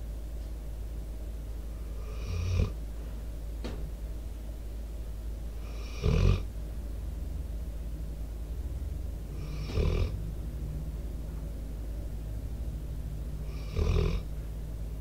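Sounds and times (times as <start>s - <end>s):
dog snoring: 1.9s - 2.8s, 5.5s - 6.5s, 9.3s - 10.2s, 13.4s - 14.3s.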